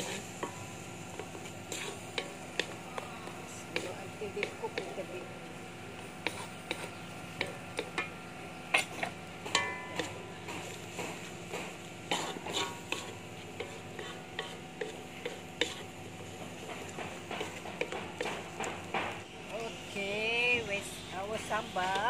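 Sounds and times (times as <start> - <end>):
spatula scraping and tapping wok: 0.0 - 5.3, 5.9 - 20.0, 21.4 - 22.0
light sizzle: 0.0 - 22.0.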